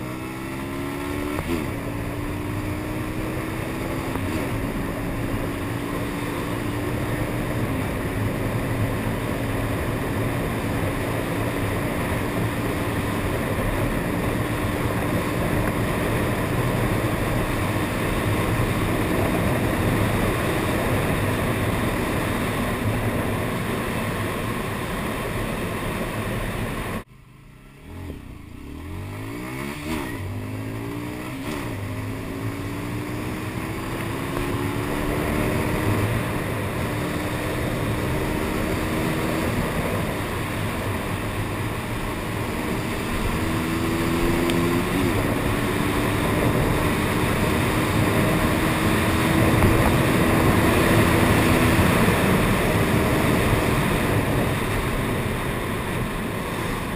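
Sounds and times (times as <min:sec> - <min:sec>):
motorcycle engine running: 0:00.0 - 0:56.9
wind rush on microphone: 0:31.7 - 0:56.9.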